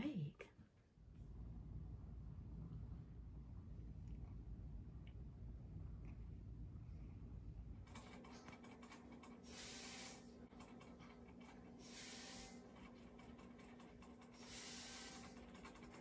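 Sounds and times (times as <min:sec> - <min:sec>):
faint steady hum: 0:00.0 - 0:08.1.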